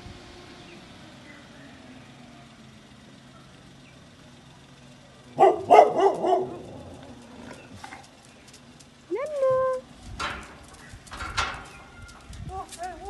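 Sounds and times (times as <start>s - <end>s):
dog yelping barks: 5.4s - 6.9s.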